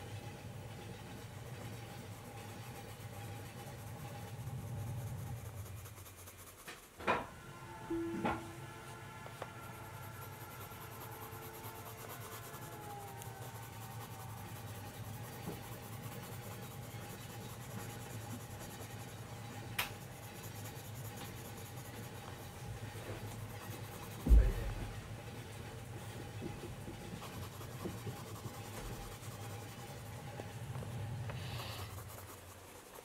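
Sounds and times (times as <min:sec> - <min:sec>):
coloured pencil scratching on paper: 0:01.1 - 0:07.2, 0:08.9 - 0:33.0
low steady hum: 0:07.1 - 0:33.0.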